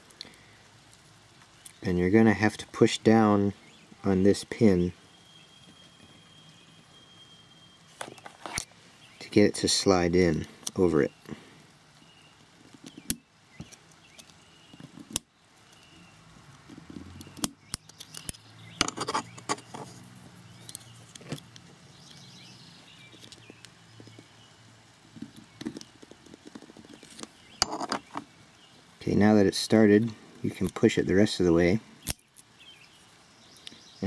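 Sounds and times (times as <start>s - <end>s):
screwdriver clicking and scraping metal: 17.3s - 19.9s, 27.0s - 28.2s.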